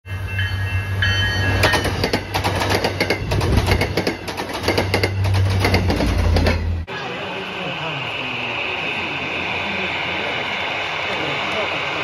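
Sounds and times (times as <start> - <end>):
train wheels clicking over track: 1.5 - 6.8.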